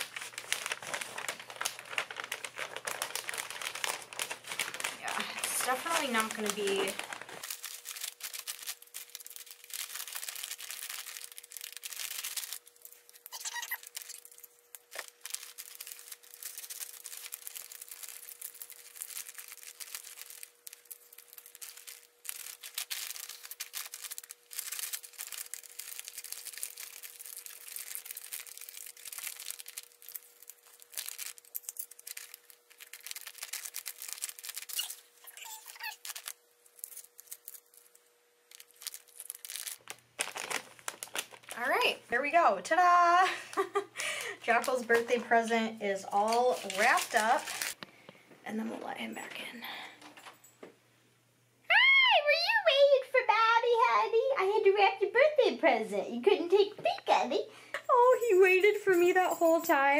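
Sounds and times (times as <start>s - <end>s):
foil wrapping paper crinkling: 0.0s - 47.8s.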